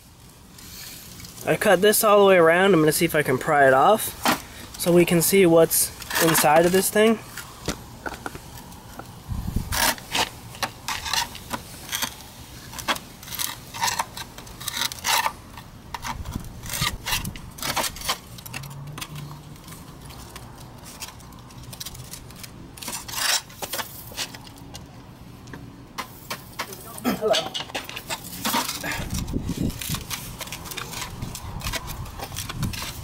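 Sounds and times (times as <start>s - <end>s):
metallic clinks and scrapes: 13.2s - 24.8s.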